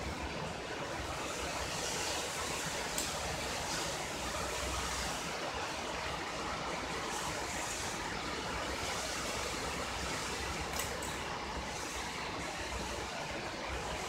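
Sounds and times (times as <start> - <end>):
small click: 10.7 - 11.2.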